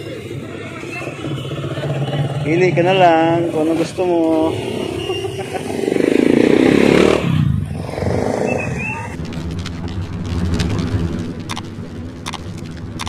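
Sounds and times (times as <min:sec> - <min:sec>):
motorcycle engine: 0:00.0 - 0:13.0
street market noise: 0:00.0 - 0:13.0
sharp clicks: 0:09.2 - 0:13.0
steady low hum: 0:09.2 - 0:13.0.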